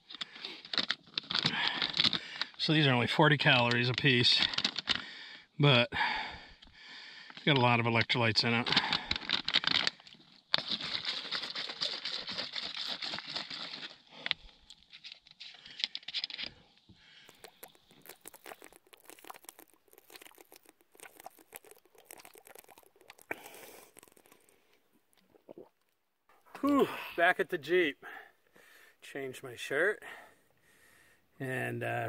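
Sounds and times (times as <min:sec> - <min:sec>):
plastic bottle clicks and rustles: 0:00.1 - 0:02.7, 0:03.4 - 0:05.1, 0:08.4 - 0:26.0
plastic packaging crinkling: 0:00.5 - 0:02.6, 0:04.4 - 0:05.0, 0:08.6 - 0:16.5, 0:17.3 - 0:24.8.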